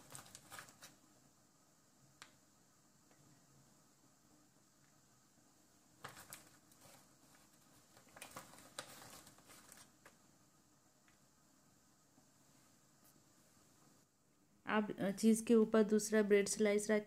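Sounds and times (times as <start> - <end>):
room hiss: 0.0 - 17.0
faint rustling: 6.0 - 10.2.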